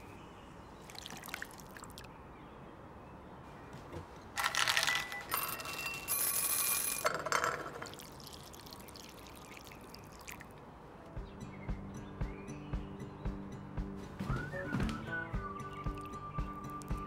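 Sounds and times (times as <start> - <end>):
liquid poured into a bowl: 7.7 - 10.6.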